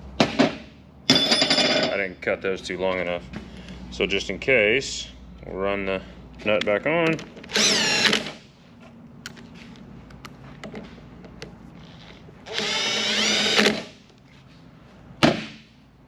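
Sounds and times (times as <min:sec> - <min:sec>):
power drill spinning: 0:07.5 - 0:08.4, 0:11.8 - 0:14.0.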